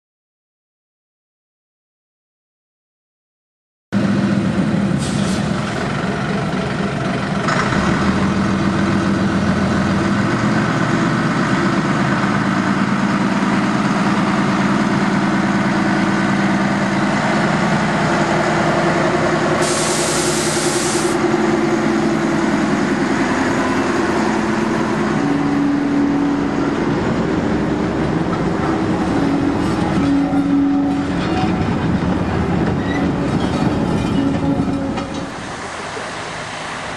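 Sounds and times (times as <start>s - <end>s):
diesel locomotive engine running: 4.0s - 36.9s
short hiss: 5.0s - 5.5s, 19.6s - 21.2s.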